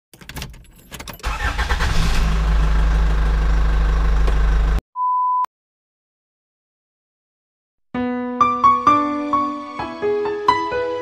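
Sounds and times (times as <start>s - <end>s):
car engine starting and idling: 0.4s - 4.8s.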